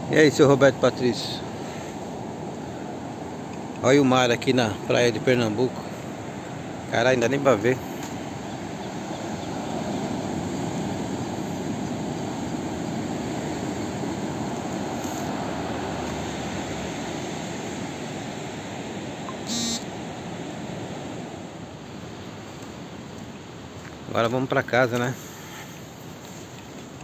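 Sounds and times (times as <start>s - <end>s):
ocean surf washing on beach: 0.0s - 27.0s
short beep: 19.3s - 19.9s.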